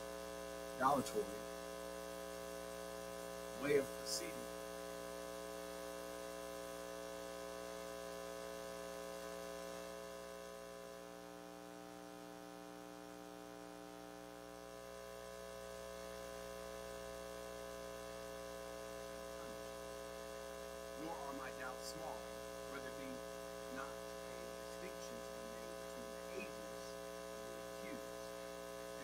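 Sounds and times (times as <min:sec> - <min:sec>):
electrical mains hum: 0:00.0 - 0:29.0
faint hiss: 0:03.1 - 0:04.7, 0:14.7 - 0:29.0.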